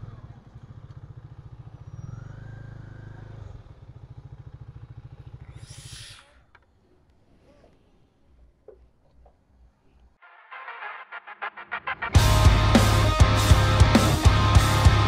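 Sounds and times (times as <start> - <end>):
motorcycle engine running: 0.0 - 5.7, 12.2 - 15.0
short hiss: 5.6 - 6.4.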